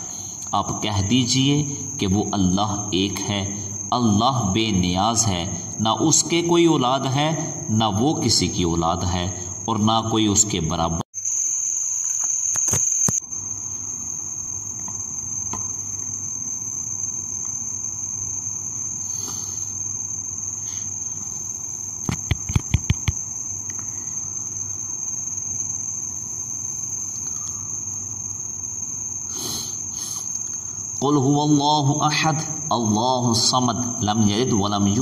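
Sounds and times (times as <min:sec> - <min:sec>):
crickets trilling: 0:00.0 - 0:35.0
faint hiss: 0:19.0 - 0:19.9, 0:28.9 - 0:34.7
quick run of clicks: 0:22.1 - 0:23.2.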